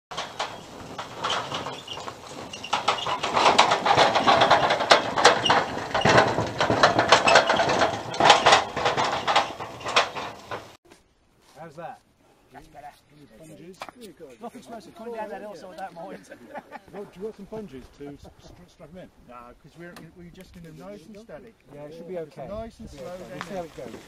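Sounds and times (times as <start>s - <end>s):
wheels crunching over gravel: 0.1s - 10.8s, 22.6s - 24.0s.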